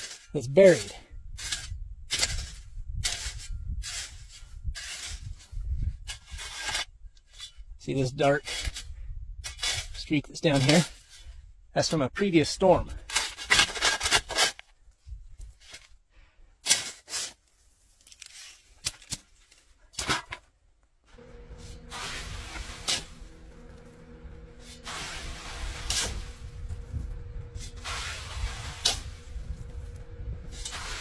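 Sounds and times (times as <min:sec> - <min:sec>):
shovel scraping gravelly dirt: 0:00.0 - 0:11.4, 0:13.0 - 0:14.7, 0:16.6 - 0:19.2, 0:21.1 - 0:31.0
steady low hum: 0:21.1 - 0:31.0
dirt hissing through sifting screen: 0:21.2 - 0:31.0.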